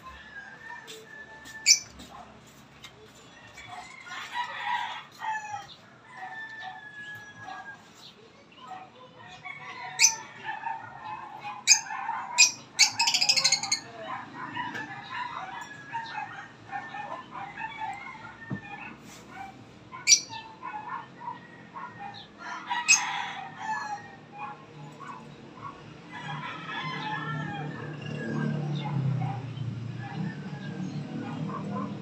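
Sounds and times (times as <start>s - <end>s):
lovebirds chirping: 11.7s - 13.8s.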